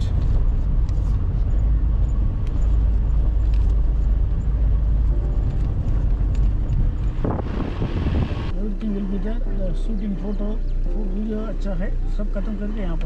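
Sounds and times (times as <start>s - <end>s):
road vehicle low rumble: 0.0s - 13.0s.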